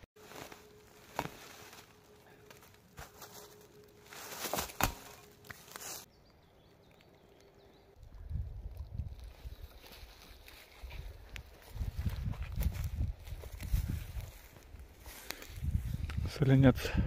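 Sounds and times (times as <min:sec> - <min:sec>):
rustling dry grass and leaves: 0:00.2 - 0:16.7.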